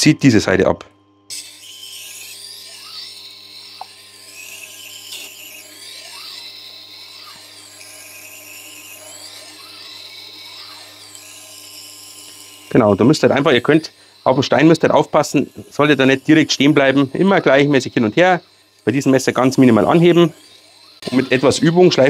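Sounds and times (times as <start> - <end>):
sharpener motor humming: 1.1 - 22.0.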